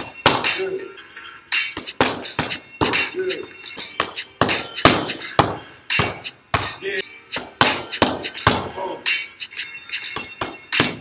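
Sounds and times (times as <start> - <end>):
boxing gloves smacking mitts: 0.0 - 0.5, 1.8 - 3.0, 3.8 - 8.7, 10.2 - 11.0.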